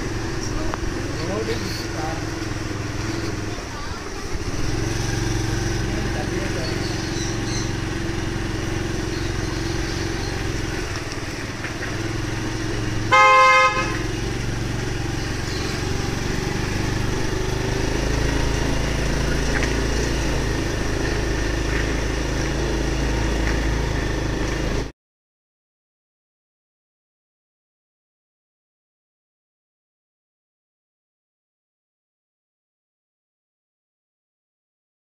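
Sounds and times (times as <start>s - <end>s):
street traffic rumble: 0.0s - 24.9s
vehicle horn honk: 13.1s - 14.2s.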